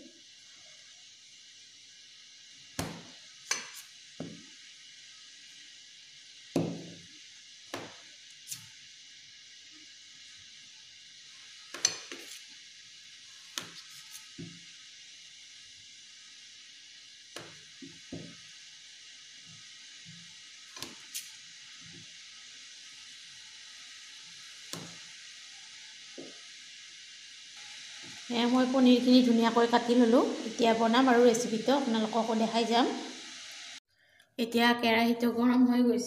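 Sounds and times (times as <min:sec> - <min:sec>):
faint hiss: 0:00.0 - 0:34.6
knife tapping and scraping on metal plate: 0:03.5 - 0:04.4, 0:11.7 - 0:12.4.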